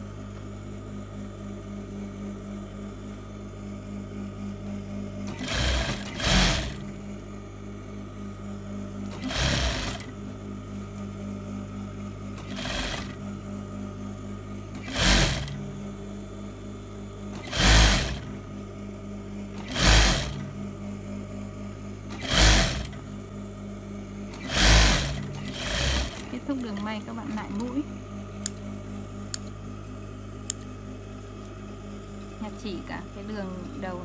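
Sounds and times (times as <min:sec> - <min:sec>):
steady low hum: 0:00.0 - 0:34.0
sewing machine stitching: 0:05.3 - 0:06.8, 0:09.1 - 0:10.1, 0:12.4 - 0:13.2, 0:14.8 - 0:15.6, 0:17.4 - 0:18.3, 0:19.6 - 0:20.5, 0:22.1 - 0:23.0, 0:24.3 - 0:27.8.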